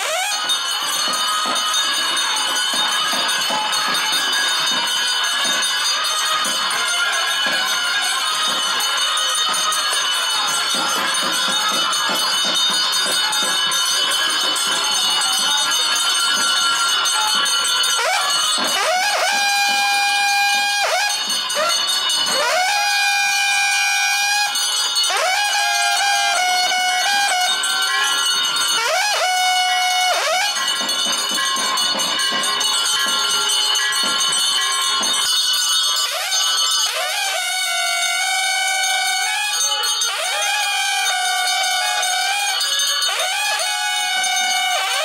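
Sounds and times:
bells jingling: 0:00.0 - 0:45.0
wind instrument long notes: 0:00.0 - 0:45.0.

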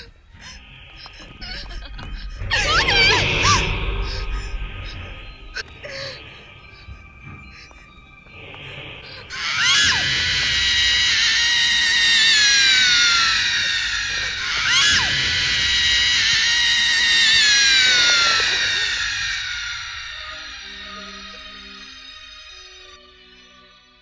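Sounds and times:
high screams sliding down: 0:09.3 - 0:23.0.

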